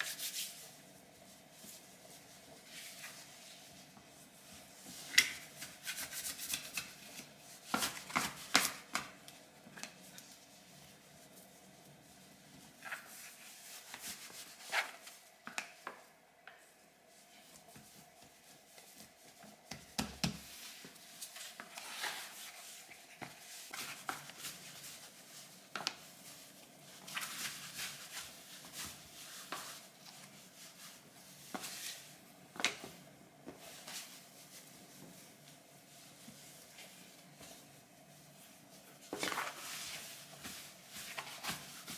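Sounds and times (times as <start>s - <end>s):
hands patting and pressing dough: 17.6s - 21.4s.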